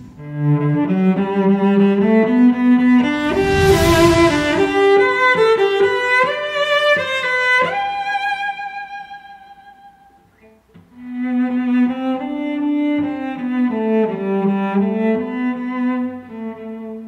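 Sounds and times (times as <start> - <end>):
cello line: 0.0 - 6.0, 6.9 - 17.0.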